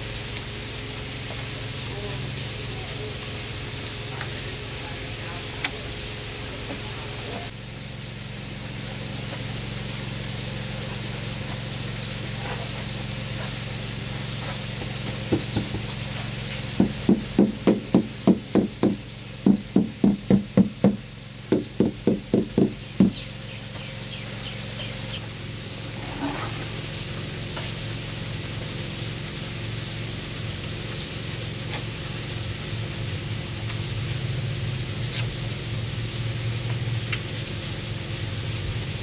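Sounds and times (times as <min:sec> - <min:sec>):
low hum: 0:07.3 - 0:30.9.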